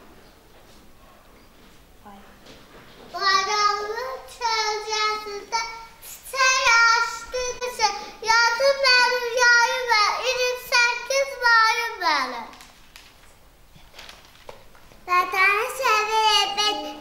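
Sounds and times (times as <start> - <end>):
child singing: 3.2 - 12.5, 15.1 - 17.0.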